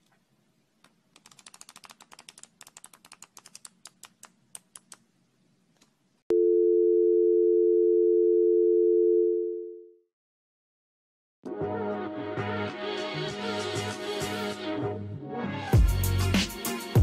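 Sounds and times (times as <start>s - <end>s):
flipbook pages flicking: 1.2s - 5.0s.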